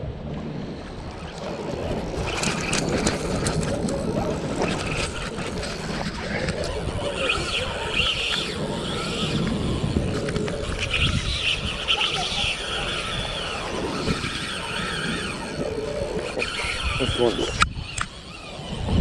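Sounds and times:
choppy lake water: 0:00.0 - 0:19.0
wind buffeting microphone: 0:00.0 - 0:19.0
scattered clicks: 0:01.2 - 0:11.5, 0:14.1 - 0:19.0.

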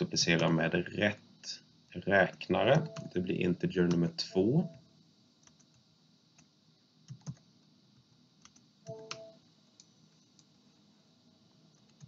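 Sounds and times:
faint hum: 0:00.0 - 0:12.0
computer clicks and keystrokes: 0:02.2 - 0:03.2, 0:03.8 - 0:04.8, 0:05.4 - 0:06.5, 0:07.1 - 0:07.5, 0:08.4 - 0:10.5, 0:11.7 - 0:12.0.

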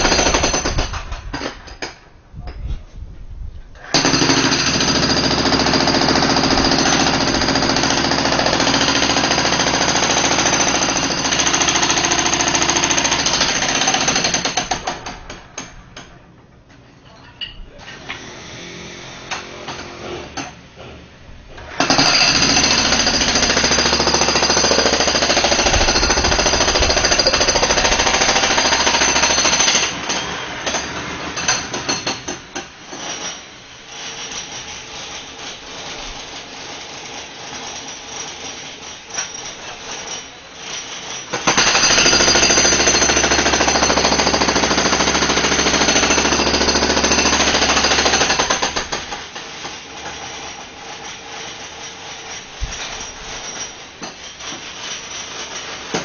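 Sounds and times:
jackhammer breaking concrete: 0:00.0 - 0:01.8, 0:03.9 - 0:15.7, 0:21.7 - 0:33.4, 0:41.1 - 0:51.2.

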